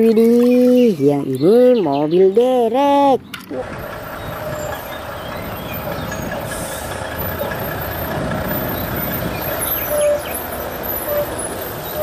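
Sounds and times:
truck diesel engine driving past: 3.6 - 12.0.

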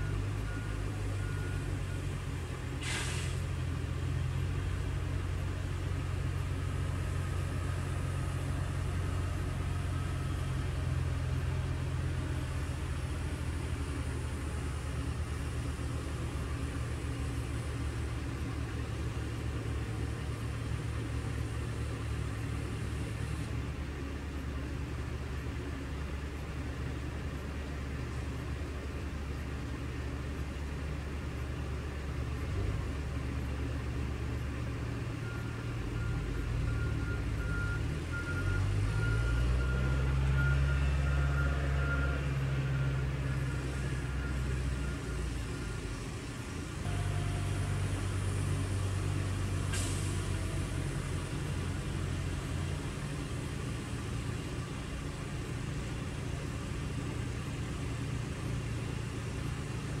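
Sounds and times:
road-work machinery engines running: 0.0 - 60.0
thin steady whine: 43.0 - 50.0.

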